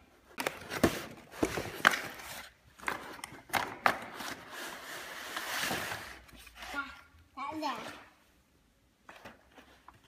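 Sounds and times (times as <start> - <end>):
cardboard rustling and scraping: 4.1 - 6.9.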